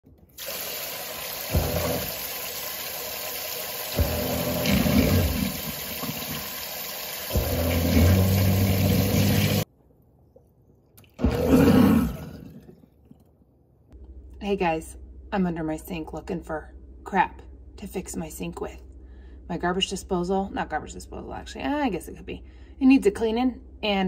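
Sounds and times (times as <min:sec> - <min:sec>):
garbage disposal motor humming: 0:00.1 - 0:09.6
tap water running into sink: 0:00.3 - 0:09.6.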